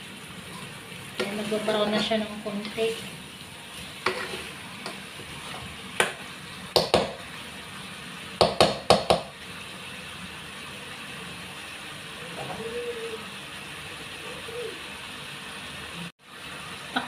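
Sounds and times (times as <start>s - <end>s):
meat sizzling in a pot: 0.0s - 17.0s
spatula scraping a pot: 3.7s - 5.8s.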